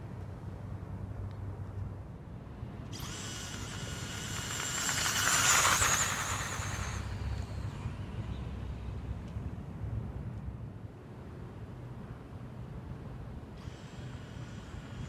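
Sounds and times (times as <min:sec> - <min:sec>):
electric motor whine: 0:03.0 - 0:08.1.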